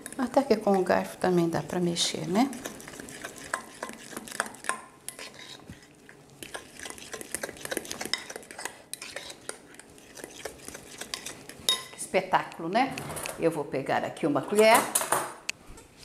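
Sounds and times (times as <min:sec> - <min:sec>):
fork scraping glass dish: 0:02.5 - 0:12.0.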